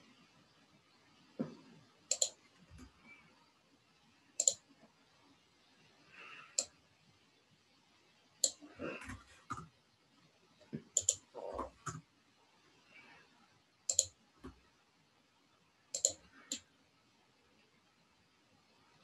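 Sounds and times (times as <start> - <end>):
mouse and keyboard clicks: 2.1 - 2.9, 4.4 - 4.6, 8.4 - 9.7, 11.0 - 12.0, 13.9 - 14.6, 16.0 - 16.6.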